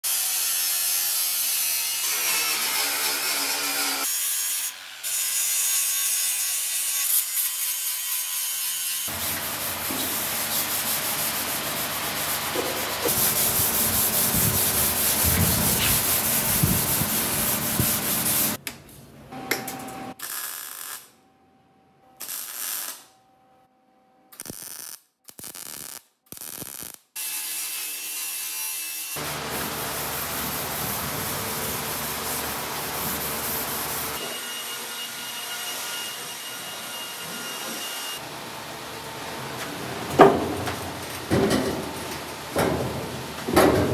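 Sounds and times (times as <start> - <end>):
angle grinder on steel: 0.1 - 18.6
scuff pad rubbing metal: 9.3 - 18.6.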